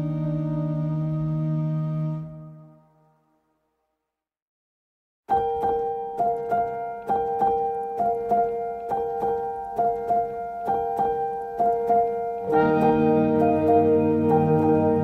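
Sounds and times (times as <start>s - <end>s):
keyboard repeating notes: 0.0s - 2.8s, 5.3s - 15.0s
low held notes: 0.0s - 2.8s, 5.5s - 15.0s.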